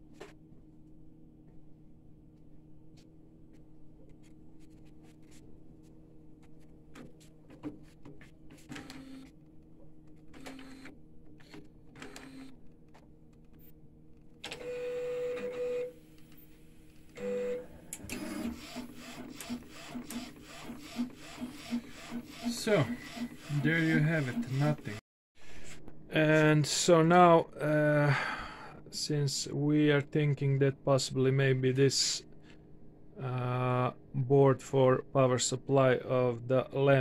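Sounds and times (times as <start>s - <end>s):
motor whine: 10.4s - 12.6s
print head carriage moving: 17.2s - 25.0s.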